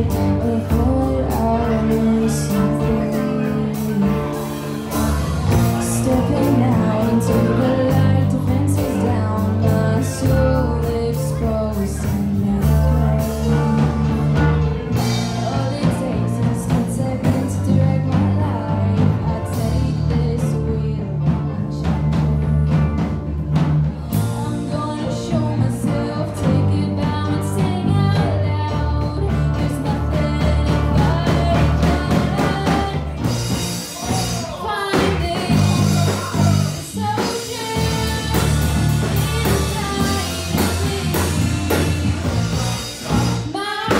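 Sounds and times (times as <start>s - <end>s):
bass guitar: 0.0s - 43.9s
drum kit: 0.0s - 43.9s
electric guitar: 0.0s - 43.9s
woman singing: 0.0s - 43.9s.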